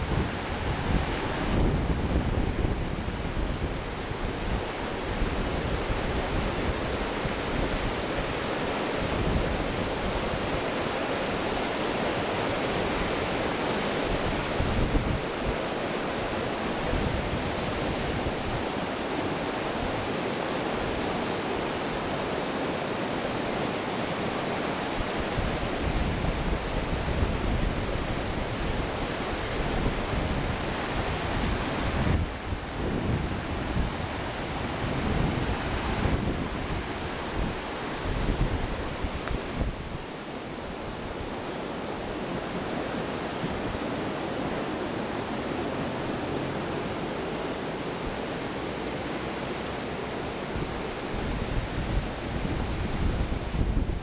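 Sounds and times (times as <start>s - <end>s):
wind buffeting microphone: 0.0s - 8.4s, 12.6s - 15.6s, 25.0s - 44.5s, 50.2s - 54.0s
river rushing over rocks: 0.0s - 54.0s.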